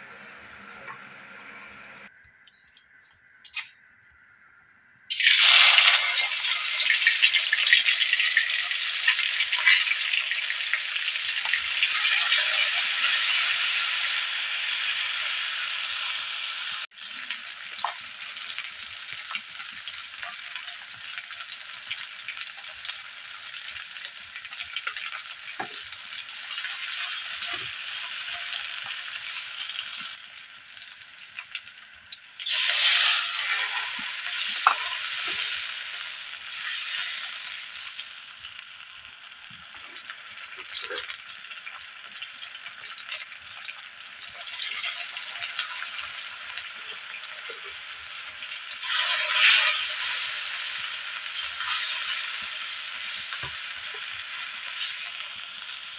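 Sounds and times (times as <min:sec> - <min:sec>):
paste sizzling in hot oil: 0:05.1 - 0:55.9
spatula scraping and tapping wok: 0:32.7 - 0:35.6.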